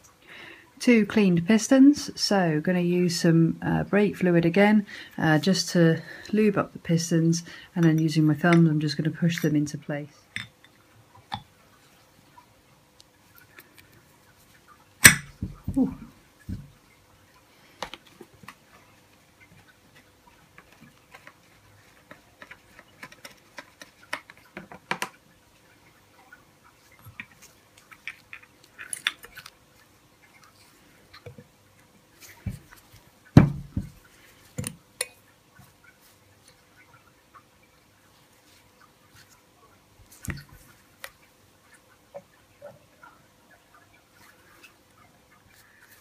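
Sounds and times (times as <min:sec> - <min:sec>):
light clicks and taps: 0:20.6 - 0:25.2.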